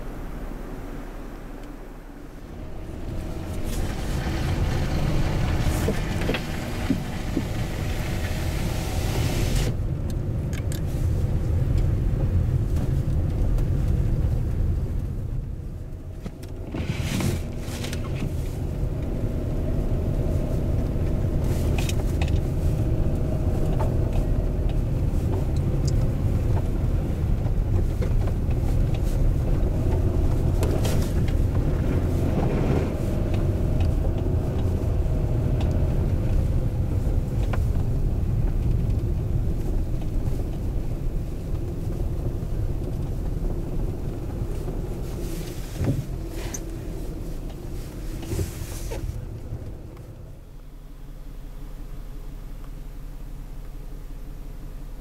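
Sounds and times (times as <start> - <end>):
faint hum: 0.0 - 3.9
vehicle engine and tyre rumble: 0.0 - 55.0.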